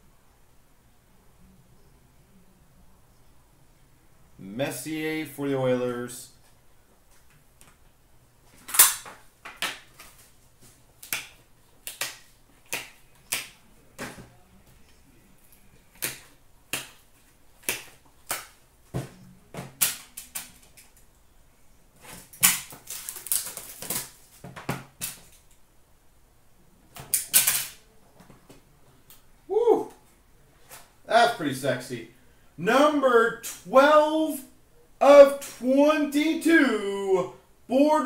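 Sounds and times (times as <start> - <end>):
cards rustling and scraping: 22.0 - 25.4.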